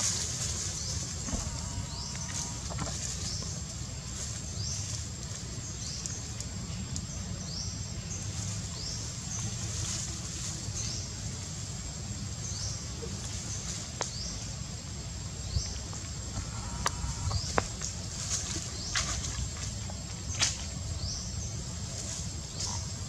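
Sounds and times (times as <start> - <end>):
steady thin high whine: 0.0 - 5.0
low rumble: 0.0 - 7.1
faint clicks: 5.2 - 7.1.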